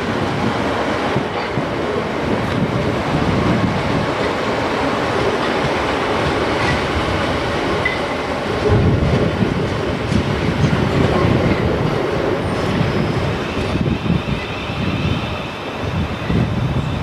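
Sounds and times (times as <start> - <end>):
clickety-clack over rail joints: 0.0 - 14.6
train wheels on rails: 0.0 - 17.0.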